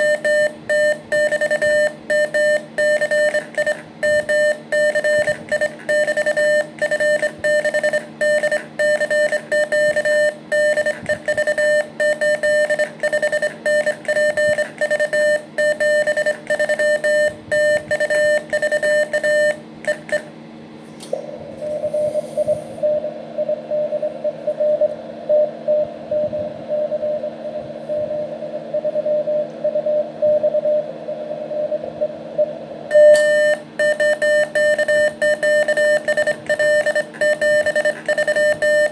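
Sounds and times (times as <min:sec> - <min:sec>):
morse code sidetone: 0:00.0 - 0:20.2, 0:32.9 - 0:38.9.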